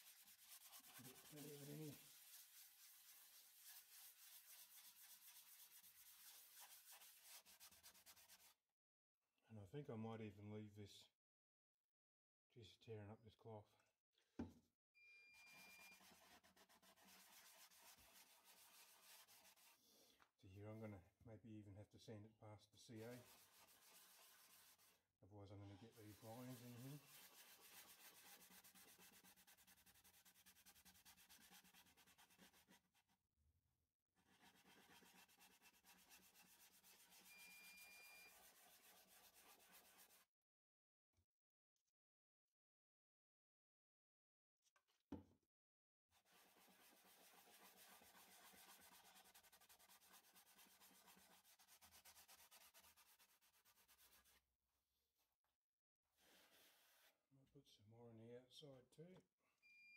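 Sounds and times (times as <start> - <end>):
hand rubbing wooden bowl: 0.0 - 8.5, 23.0 - 25.0, 25.8 - 32.8, 56.2 - 57.1
cloth rubbing wooden bowl: 0.0 - 8.6, 15.4 - 20.0, 23.0 - 25.0, 25.7 - 32.8, 34.2 - 40.2, 46.2 - 54.4, 56.2 - 57.2.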